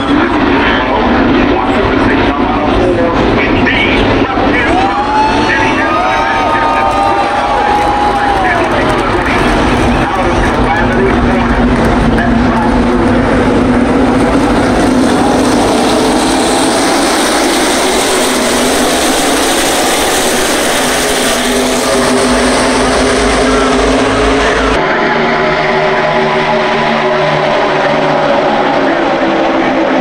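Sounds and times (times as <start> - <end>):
race cars passing: 0.0 - 30.0.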